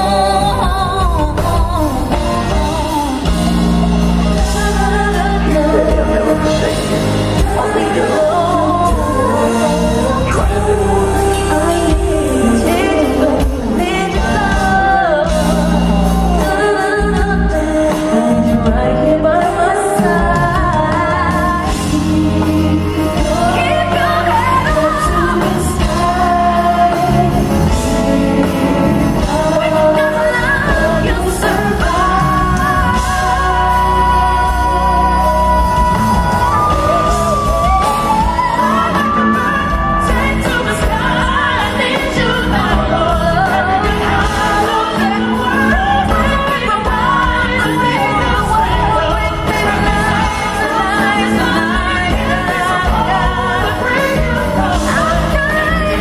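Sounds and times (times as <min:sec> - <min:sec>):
band accompaniment: 0:00.0 - 0:56.0
woman singing pop ballad: 0:00.0 - 0:56.0.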